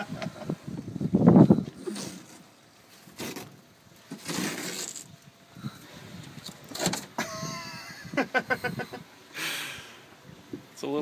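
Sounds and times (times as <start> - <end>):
fabric rustling and tearing: 4.1 - 5.1.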